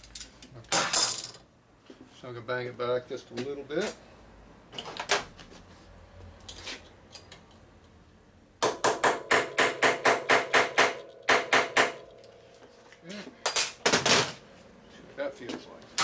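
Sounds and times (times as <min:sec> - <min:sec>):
hammer ringing on metal: 0:08.6 - 0:12.2.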